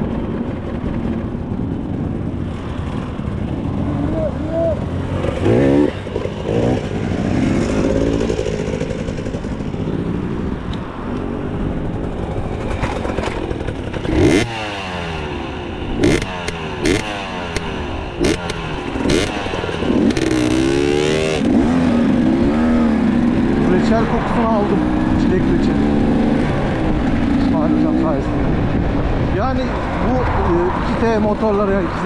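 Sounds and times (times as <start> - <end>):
motorcycle engine revving: 0.0 - 30.2
sharp knocks and clatter: 12.4 - 14.2.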